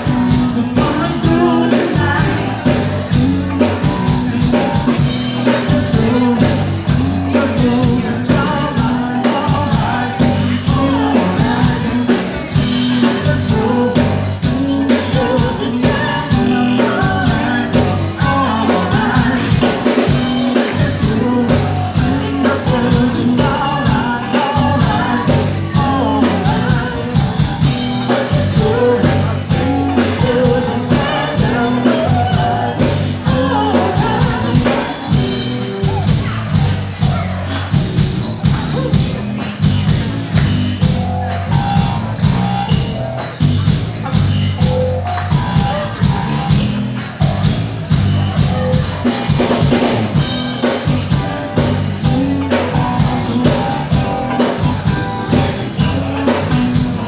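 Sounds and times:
live band playing: 0:00.0 - 0:57.0
woman singing: 0:05.5 - 0:12.4, 0:28.3 - 0:35.2.

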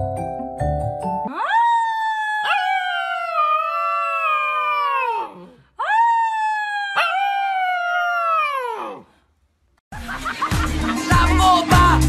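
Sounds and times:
dog howling: 0:01.3 - 0:09.0.

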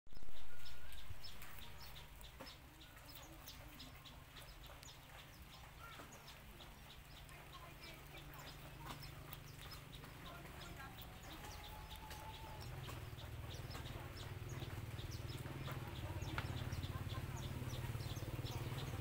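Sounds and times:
rabbit chewing carrot crunches: 0:00.1 - 0:14.2.

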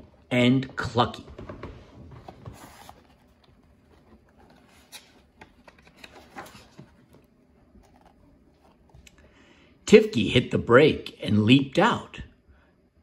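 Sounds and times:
book pages rustling: 0:01.3 - 0:09.3.

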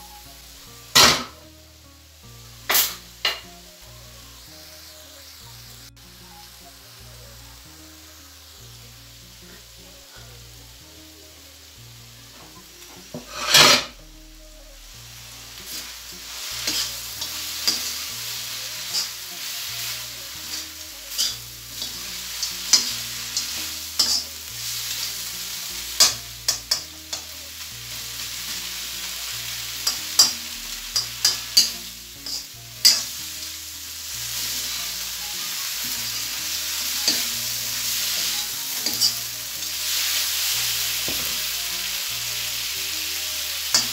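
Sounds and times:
meat sizzling in a wok: 0:00.0 - 0:43.9
metal spoon scraping a pan: 0:13.1 - 0:14.0, 0:16.4 - 0:19.2, 0:19.8 - 0:24.4, 0:31.0 - 0:33.2, 0:36.1 - 0:39.8.

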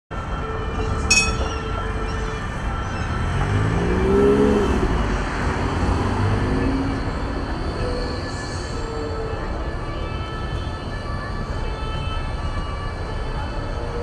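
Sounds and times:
tram rumbling on rails: 0:00.2 - 0:11.6
sharp metallic ping: 0:01.0 - 0:01.7.

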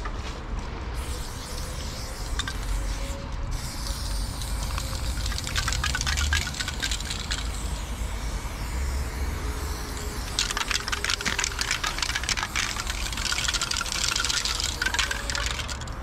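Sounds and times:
aerosol spray can hissing: 0:03.6 - 0:15.8.

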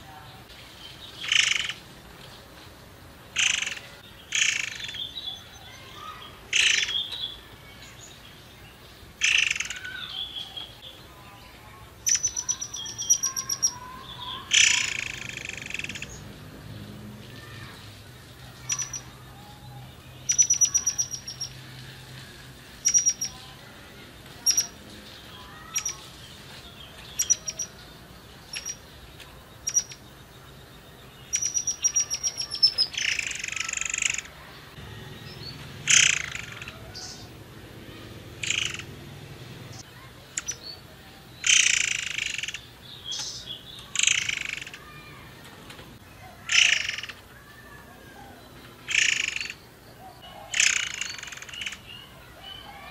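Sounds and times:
harsh buzzy bird notes: 0:31.3 - 0:40.1.

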